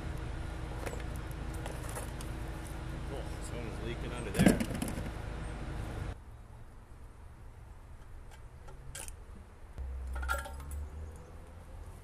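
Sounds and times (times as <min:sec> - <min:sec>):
metal parts clattering: 0:10.2 - 0:10.8.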